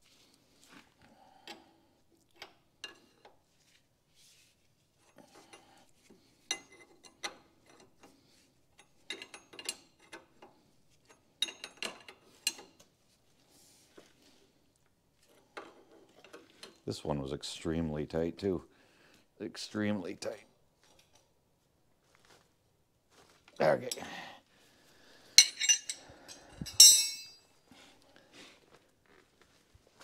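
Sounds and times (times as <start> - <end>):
wrenches clinking on metal fitting: 6.5 - 8.2, 8.8 - 10.5, 11.1 - 12.8, 25.4 - 27.4.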